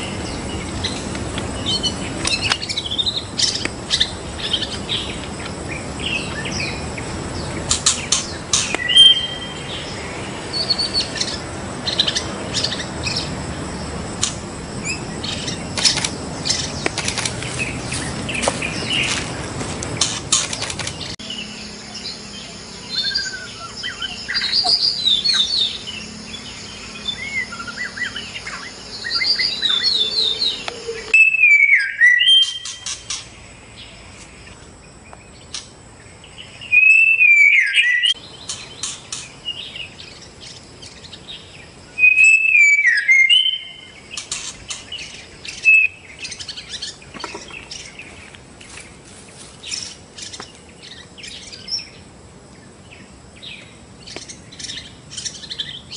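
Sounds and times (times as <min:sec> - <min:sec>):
sharp clicking bird notes: 0:00.0 - 0:05.6, 0:07.5 - 0:09.5, 0:14.2 - 0:21.2, 0:32.3 - 0:33.4, 0:38.4 - 0:39.4, 0:44.1 - 0:48.8
bird chirps and trills: 0:00.0 - 0:55.9
loud swooping whistled phrases: 0:42.0 - 0:43.9.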